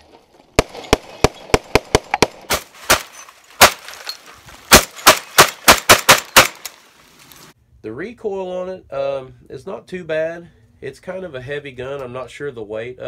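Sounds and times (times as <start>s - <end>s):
rapid shotgun fire: 0.6s - 3.8s, 4.7s - 6.6s.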